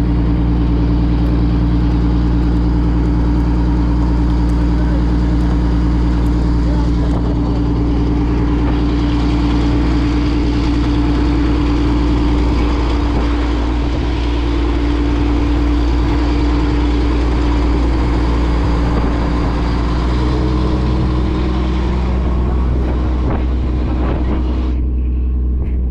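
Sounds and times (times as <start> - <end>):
engine running steadily: 0.0 - 25.9.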